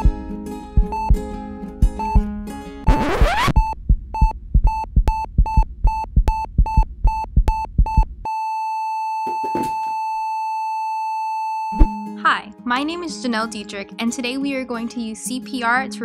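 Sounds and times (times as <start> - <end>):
heart monitor beeps: 0.8 - 1.3, 2.0 - 2.3, 2.9 - 12.1
low heartbeat thump: 0.8 - 8.3
flatline tone: 2.9 - 4.3.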